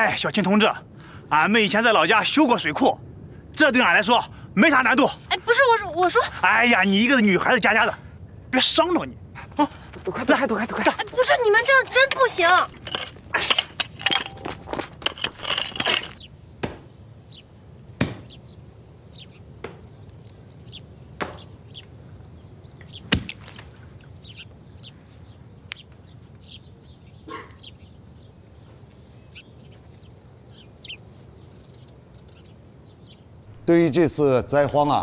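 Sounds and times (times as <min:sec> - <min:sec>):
small birds chirping: 0:00.0 - 0:35.0
pickaxes striking stony ground: 0:10.7 - 0:16.3.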